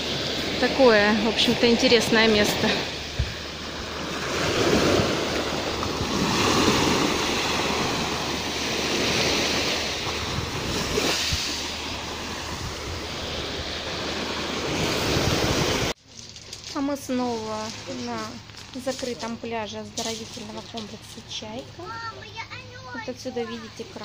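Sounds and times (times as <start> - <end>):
wind buffeting microphone: 0.0 - 16.0
waves breaking on a pebble beach: 0.0 - 21.0.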